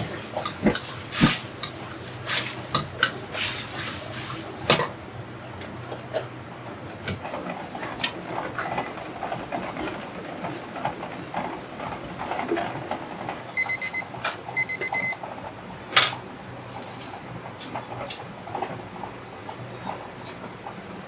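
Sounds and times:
electronic beeper: 13.6 - 15.2.

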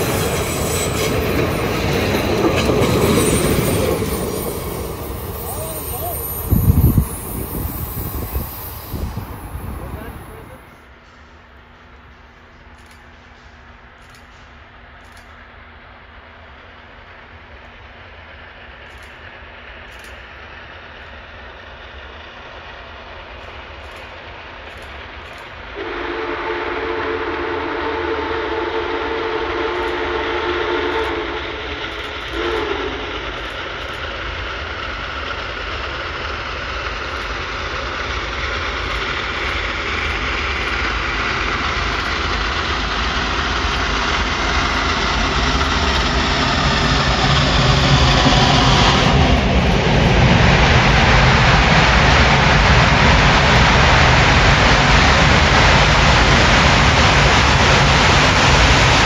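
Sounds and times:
steam locomotive chime whistle: 0.0 - 10.8, 25.8 - 33.5
steam locomotive exhaust rumbling: 0.0 - 59.0.

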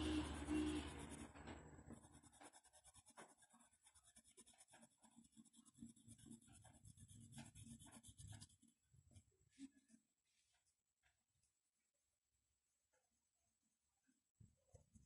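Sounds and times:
pencil scratching on paper: 0.0 - 8.8.

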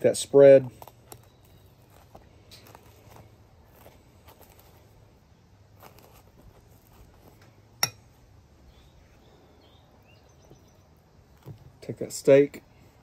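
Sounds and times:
faint bird chirps: 8.6 - 11.0.

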